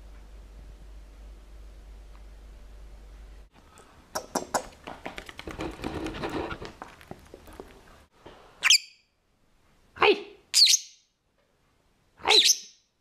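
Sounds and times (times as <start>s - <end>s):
lovebird clicks and chatter: 4.2s - 5.5s
shrill bird chirp: 8.6s - 9.2s, 10.5s - 11.2s, 12.3s - 12.9s.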